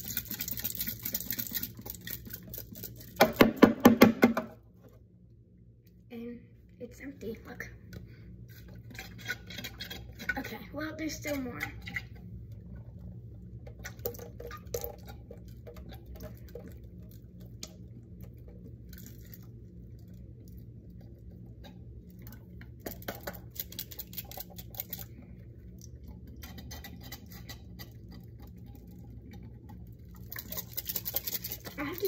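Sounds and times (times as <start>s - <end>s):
steady low hum: 0.0s - 32.0s
plastic toy shaken over sink: 30.2s - 32.0s.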